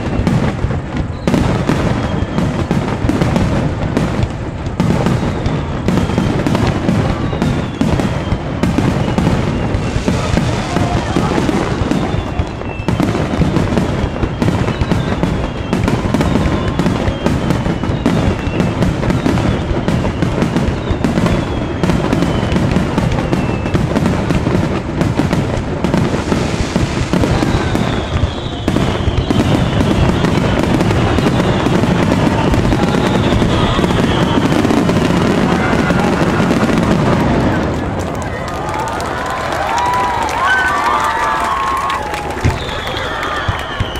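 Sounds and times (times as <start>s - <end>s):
fireworks bursting: 0.0s - 43.9s
fireworks whistles: 0.0s - 43.9s.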